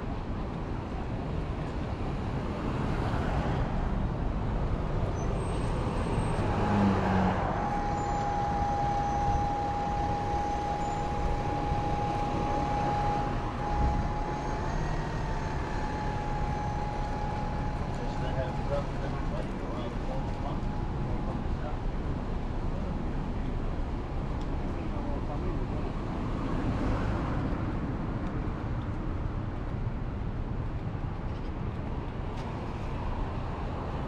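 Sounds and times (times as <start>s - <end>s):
road traffic rumble: 0.0s - 34.0s
steady high whine: 7.4s - 23.1s.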